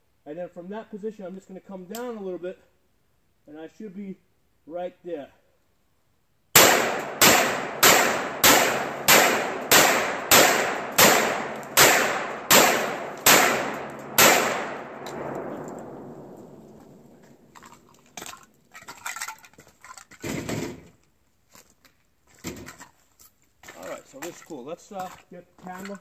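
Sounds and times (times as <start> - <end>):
rifle shots with echo: 6.6 - 17.5
handling noises: 12.4 - 21.0
faint footsteps: 14.8 - 20.1, 21.4 - 26.0.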